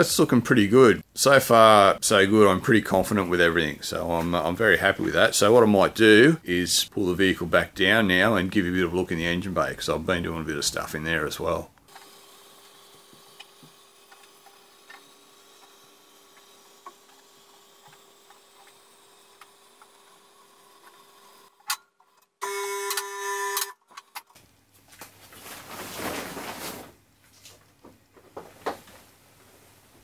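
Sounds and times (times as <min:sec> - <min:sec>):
fabric cover rustling: 0:24.7 - 0:27.6.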